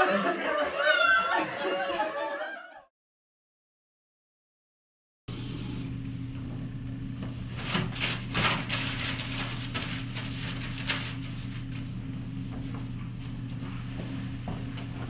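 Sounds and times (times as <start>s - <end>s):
low electrical hum: 5.3s - 15.0s
paper towels crackling: 7.5s - 11.9s.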